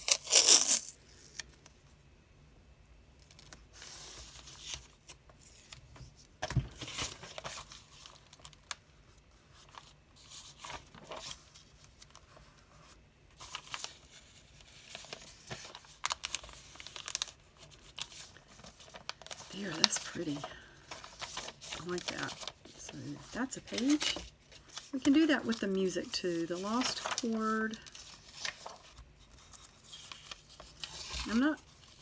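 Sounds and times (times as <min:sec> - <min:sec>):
masking tape tearing: 0:00.0 - 0:01.4
paper pages rustling: 0:03.3 - 0:08.9, 0:09.5 - 0:32.0.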